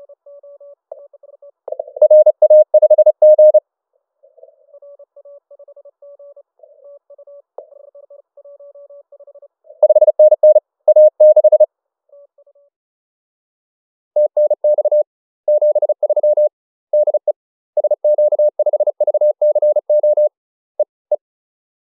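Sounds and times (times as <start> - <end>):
morse code tone: 1.7 - 3.6, 9.8 - 11.7.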